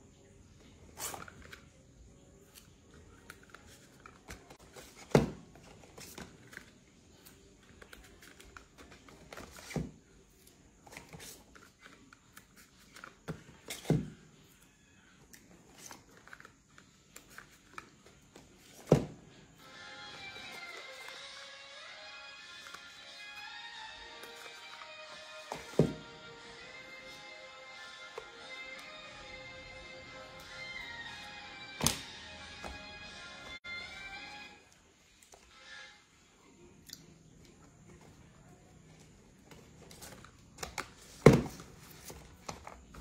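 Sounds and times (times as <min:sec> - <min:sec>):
boxes and bottles rustling and clicking: 0:02.5 - 0:14.2, 0:37.4 - 0:43.0.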